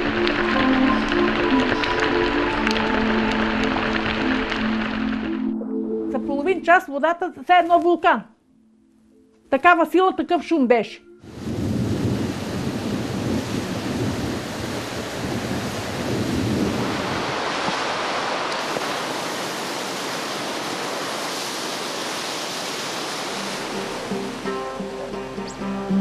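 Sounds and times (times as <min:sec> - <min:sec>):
floodwater rushing: 0:00.0 - 0:05.6, 0:11.2 - 0:26.0.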